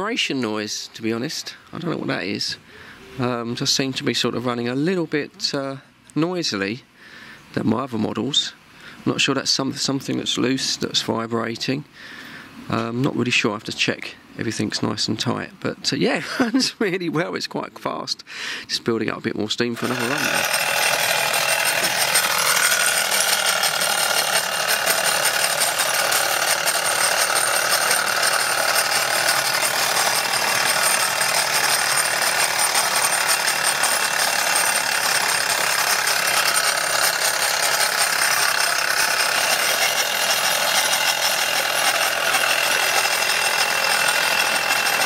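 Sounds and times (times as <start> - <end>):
model steam tractor rattling: 19.8 - 45.0.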